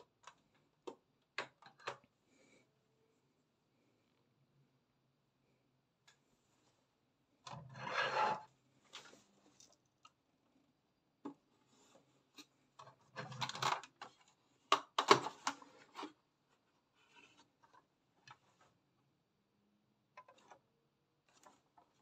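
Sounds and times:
plastic toy scraping on tabletop: 7.5s - 8.5s.

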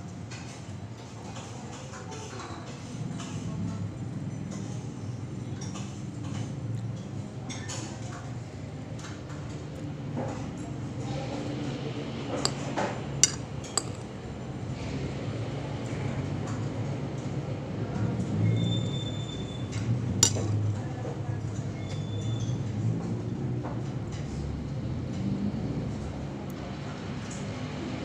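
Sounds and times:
metal spoon clinking on plate: 13.2s - 14.1s, 20.2s - 20.6s.

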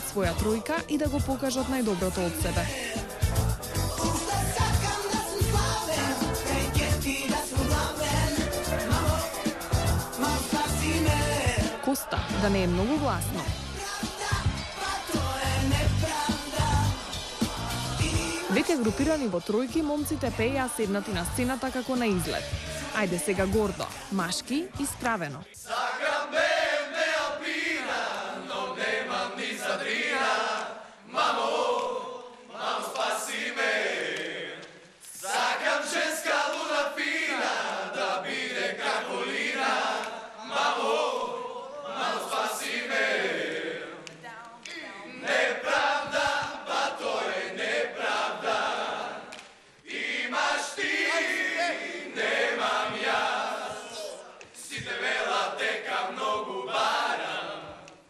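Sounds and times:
young men singing unaccompanied: 1.6s - 11.8s, 13.6s - 18.9s, 44.8s - 49.3s, 49.9s - 57.9s.

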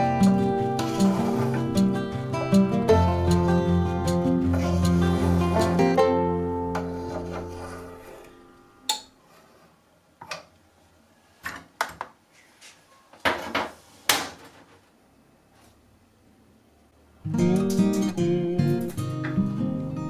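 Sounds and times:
acoustic guitar music: 0.0s - 8.9s, 17.2s - 20.0s.

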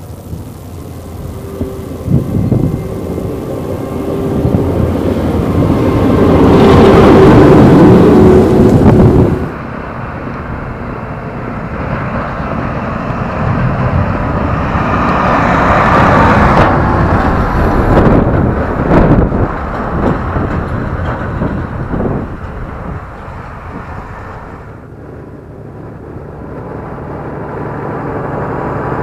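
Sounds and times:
tractor passing close by: 0.0s - 29.0s
tractors driving past: 0.0s - 29.0s.

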